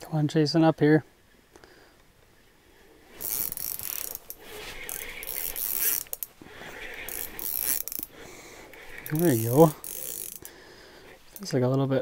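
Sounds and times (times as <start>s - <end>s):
fishing reel ratchety whirr: 3.1s - 11.5s.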